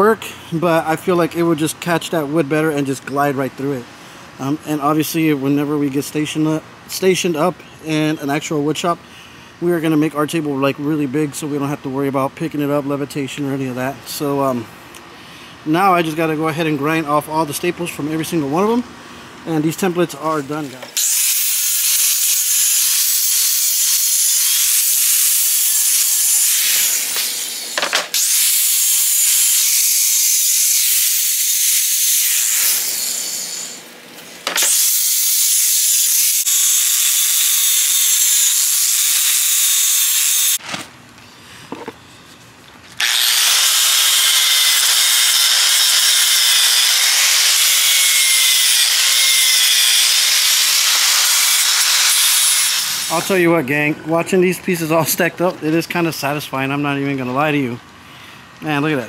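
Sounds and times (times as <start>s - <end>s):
angle grinder grinding steel: 20.2s - 40.6s, 43.0s - 53.5s.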